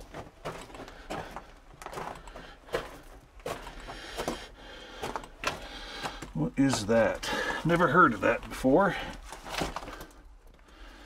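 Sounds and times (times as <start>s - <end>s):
footsteps crunching on gravel: 0.0s - 10.1s.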